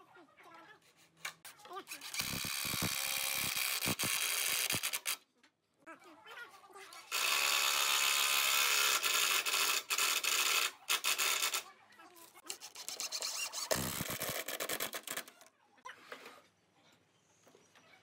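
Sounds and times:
cordless drill driving screws: 0:02.0 - 0:05.2.

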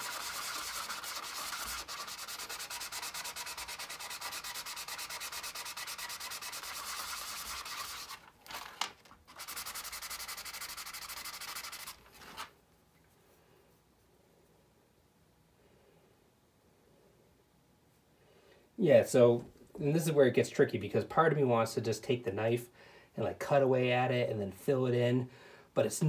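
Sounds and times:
sandpaper rubbing on plastic: 0:00.0 - 0:12.5.

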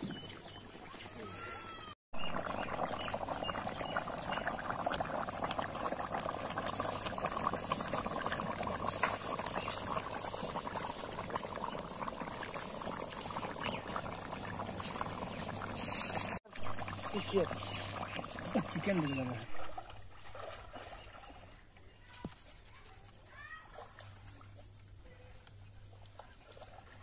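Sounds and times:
thick gravy bubbling and popping: 0:02.2 - 0:20.6.

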